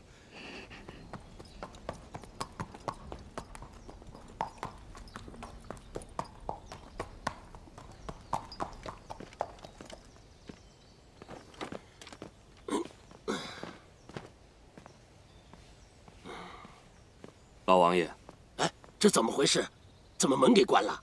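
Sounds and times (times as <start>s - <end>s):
horse hooves clip-clopping: 0.7s - 13.2s.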